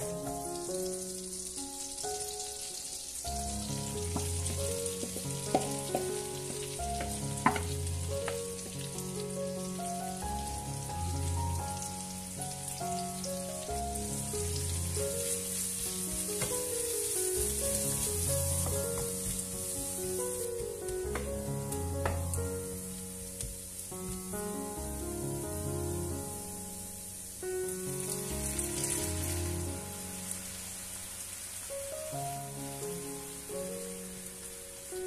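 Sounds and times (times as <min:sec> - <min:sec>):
onions sizzling in frying pan: 0:00.0 - 0:35.0
soft music with slow bass beat: 0:03.3 - 0:30.6.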